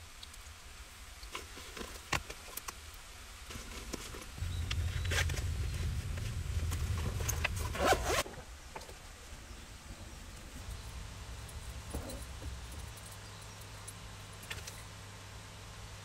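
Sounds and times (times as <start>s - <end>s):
zipper being drawn: 7.2s - 8.3s.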